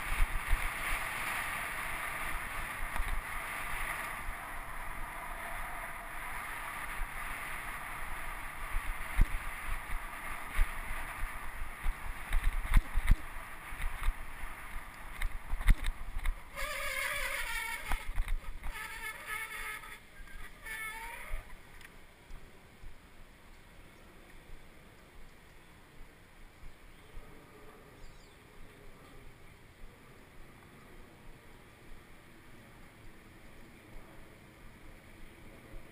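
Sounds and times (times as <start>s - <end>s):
wind and road noise: 0.0s - 35.9s
bicycle brakes squealing: 16.5s - 21.6s.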